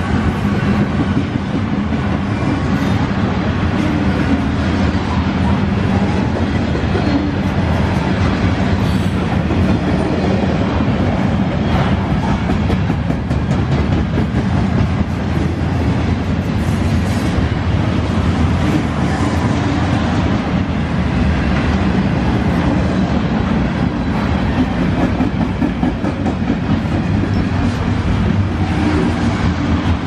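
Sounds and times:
steel wheels rumbling on rails: 0:00.0 - 0:30.0
wheels clicking over rail joints: 0:11.7 - 0:16.8.

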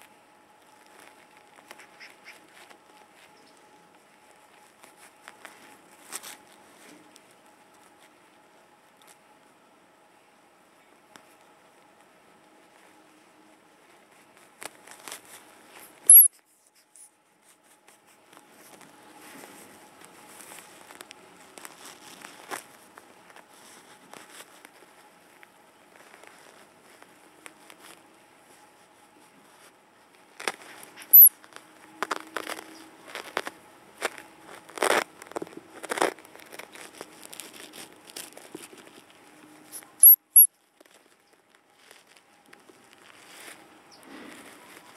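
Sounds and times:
hedgehogs scratching and rustling: 0:00.6 - 0:08.3, 0:10.8 - 0:40.0, 0:40.6 - 0:44.9
hedgehogs squeaking: 0:01.7 - 0:02.5, 0:31.0 - 0:31.3, 0:40.0 - 0:40.5
hedgehog high-pitched peep: 0:31.0 - 0:31.3.

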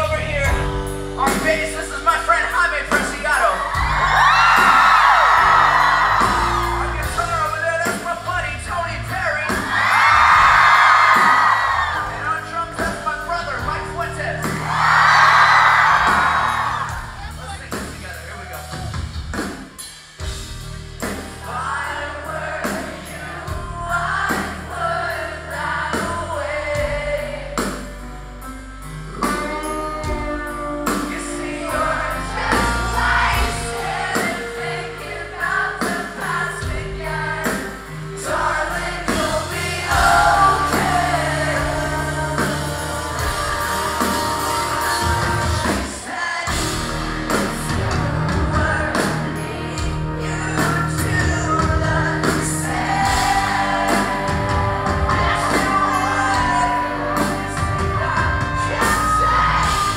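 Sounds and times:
live rock band playing: 0:00.0 - 0:59.9
person singing: 0:29.2 - 0:59.9.

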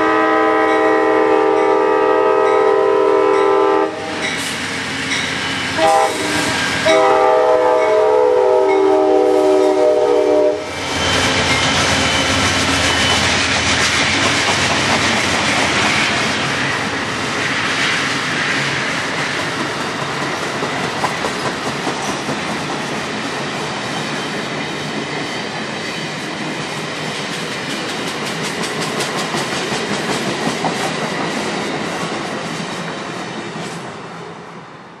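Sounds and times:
train wheels clicking on rails: 0:04.1 - 0:08.0, 0:10.6 - 0:34.0.

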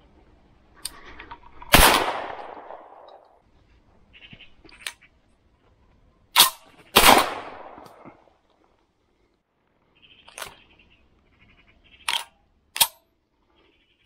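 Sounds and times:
shotgun shots echoing: 0:01.7 - 0:03.2, 0:06.4 - 0:08.1.

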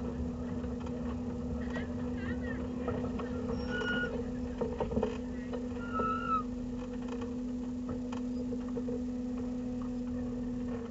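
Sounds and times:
car cabin engine drone: 0:00.0 - 0:10.9
short high squeal: 0:03.5 - 0:04.1, 0:05.8 - 0:06.5.

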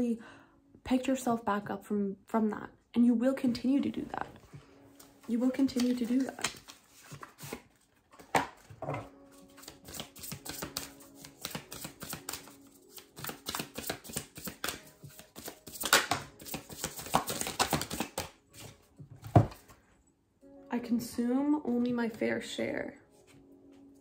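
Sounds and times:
cards being shuffled: 0:05.0 - 0:19.7.

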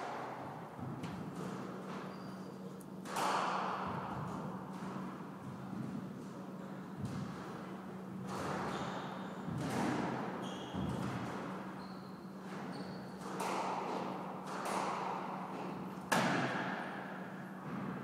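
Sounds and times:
shoes squeaking on wooden floor: 0:02.0 - 0:02.5
squash ball hits echoing: 0:03.0 - 0:06.0, 0:09.4 - 0:11.4, 0:13.2 - 0:18.0.

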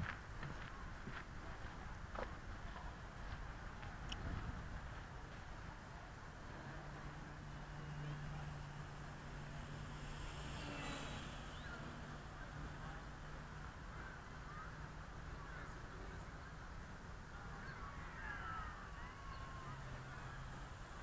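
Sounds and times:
wind noise: 0:00.0 - 0:05.4
model plane propeller whirring: 0:06.0 - 0:17.7.

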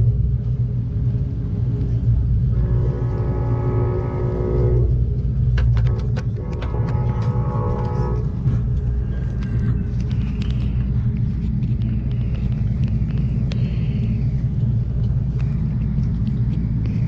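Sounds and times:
train rumbling: 0:00.0 - 0:17.0
light clicks and ticks: 0:09.2 - 0:17.0.

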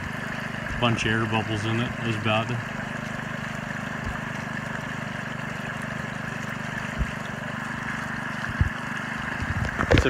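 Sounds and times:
small water pump engine idling: 0:00.0 - 0:10.0
water rushing down sluice: 0:00.0 - 0:10.0.

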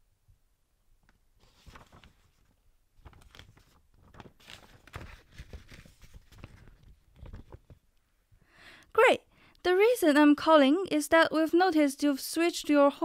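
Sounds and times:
rustling and crackling: 0:01.0 - 0:07.9.

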